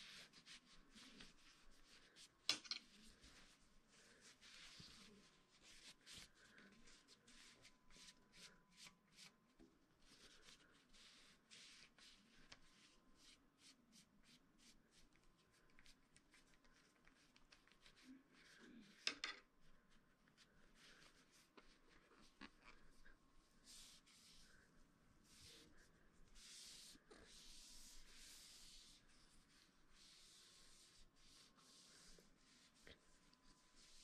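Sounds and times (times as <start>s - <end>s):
cloth rubbing on fishing rod: 20.8s - 34.0s.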